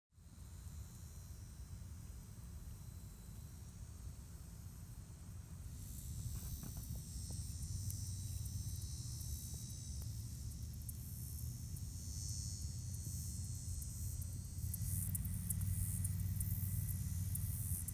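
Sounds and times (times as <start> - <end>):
insects buzzing: 0.2 - 17.9.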